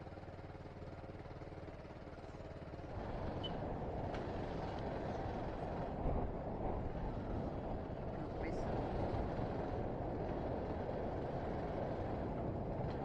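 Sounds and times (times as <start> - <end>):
motorcycle engine running: 0.0 - 5.8.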